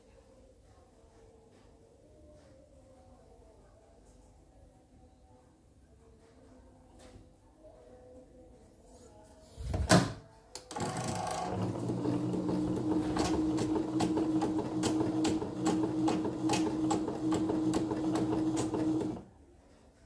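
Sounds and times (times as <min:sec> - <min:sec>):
embroidery machine stitching: 0:10.6 - 0:19.3.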